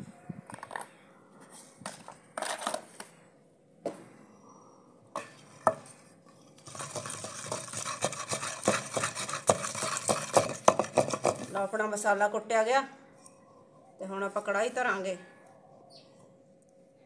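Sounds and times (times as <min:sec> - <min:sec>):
wooden pestle pounding paste: 0:06.6 - 0:11.6.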